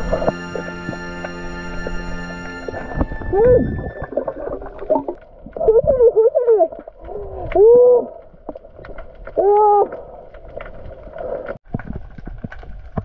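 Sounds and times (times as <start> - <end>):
faint clicking and crackling: 4.1 - 13.0.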